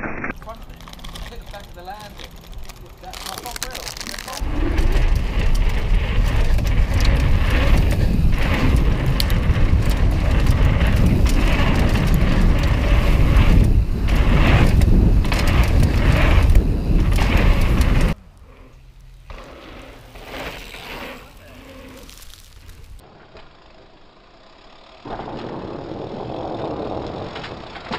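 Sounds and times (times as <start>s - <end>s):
bike knocks and rattles: 0.3s - 18.2s, 25.1s - 27.9s
tyre rumble on dirt: 4.4s - 18.2s
wind over microphone: 4.4s - 18.2s.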